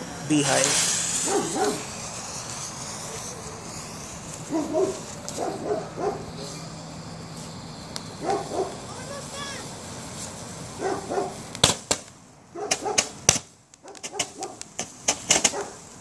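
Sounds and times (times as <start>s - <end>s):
dog barking: 1.2s - 1.8s, 4.5s - 6.3s, 8.2s - 8.8s, 10.8s - 11.4s, 12.6s - 13.1s, 13.8s - 14.6s, 15.5s - 15.8s
faint steady hiss: 6.3s - 12.4s.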